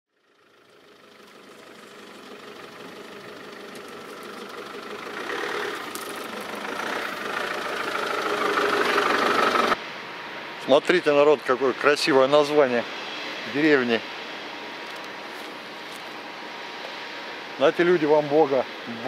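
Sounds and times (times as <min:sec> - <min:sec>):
car engine running: 0:00.1 - 0:09.8.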